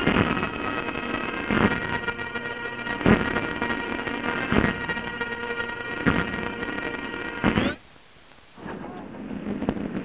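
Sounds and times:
crackly clicks and pops: 0.0s - 10.0s
faint hiss: 0.0s - 10.0s.

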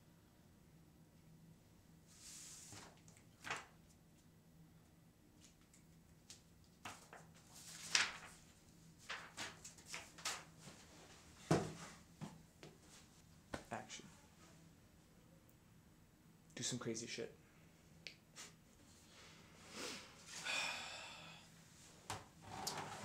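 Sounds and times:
paper rustling: 2.5s - 3.7s, 6.7s - 10.9s.

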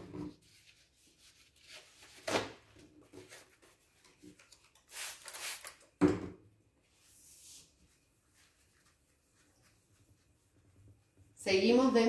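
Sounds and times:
eraser rustling: 3.1s - 5.8s.

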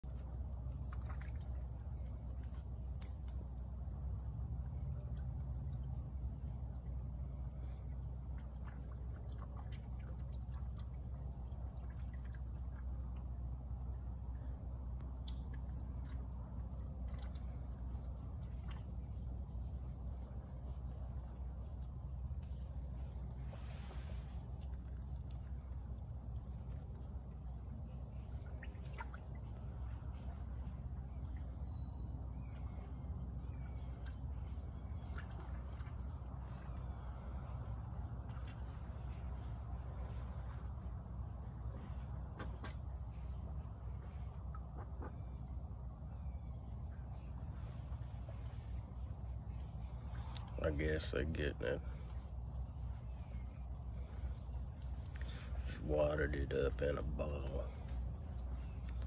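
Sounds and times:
small water splashes: 0.0s - 45.4s, 51.8s - 56.2s
low water rumble: 0.0s - 59.0s
faint clicks: 0.1s - 3.6s, 50.2s - 50.6s.

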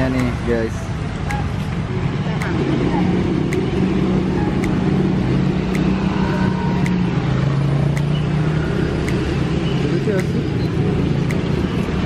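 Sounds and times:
roadside traffic noise: 0.0s - 12.0s
faint sharp tick: 0.1s - 0.4s, 5.7s - 7.0s, 7.9s - 8.2s, 11.2s - 11.8s.

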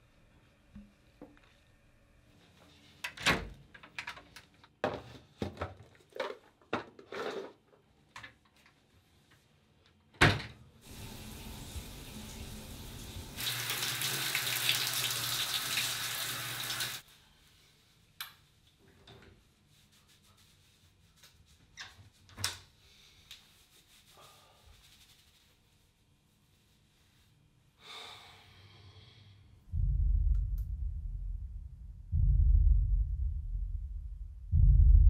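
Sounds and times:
water running from a tap: 10.9s - 17.0s.

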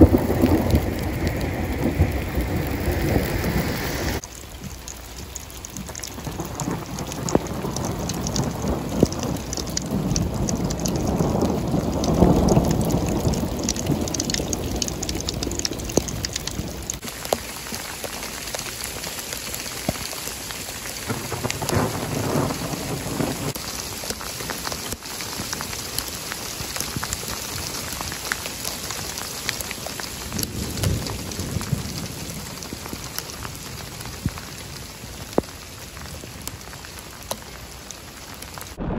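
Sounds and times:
thunder rumbling: 0.0s - 4.2s, 5.8s - 17.0s, 21.0s - 23.6s, 38.6s - 38.9s
hail pattering on ground: 0.0s - 38.9s
heavy rain: 0.0s - 38.9s.

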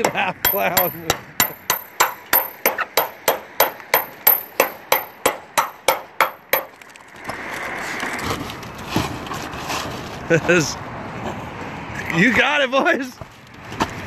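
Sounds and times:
hammer striking sheet metal: 0.0s - 6.7s.

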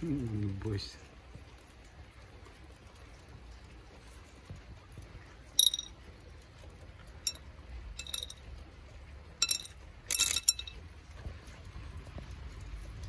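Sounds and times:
kibble clinking into ceramic bowl: 5.6s - 5.9s, 8.0s - 8.4s, 9.4s - 10.8s.

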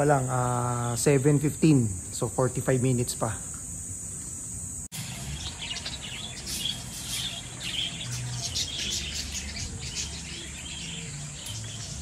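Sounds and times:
birds chirping: 4.0s - 12.0s.

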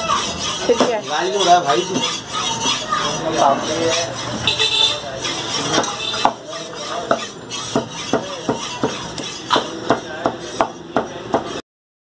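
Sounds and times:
cleaver chopping meat on wood: 5.7s - 11.6s.

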